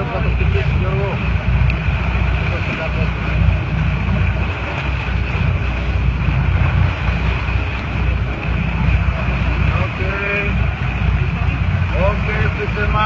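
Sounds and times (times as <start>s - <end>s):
boat engine rumbling: 0.0s - 13.0s
wind buffeting microphone: 0.0s - 13.0s.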